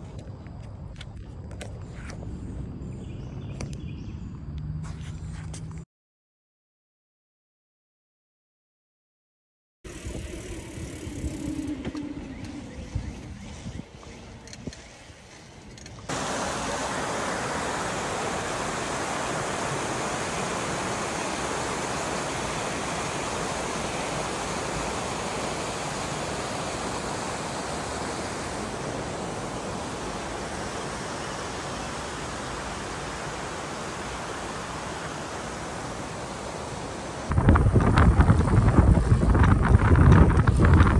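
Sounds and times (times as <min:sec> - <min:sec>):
river rushing over rocks: 0:16.1 - 0:37.4.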